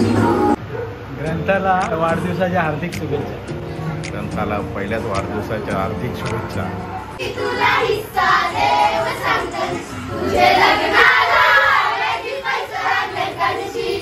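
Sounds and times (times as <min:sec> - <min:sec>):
women singing and shouting: 0:06.9 - 0:14.0.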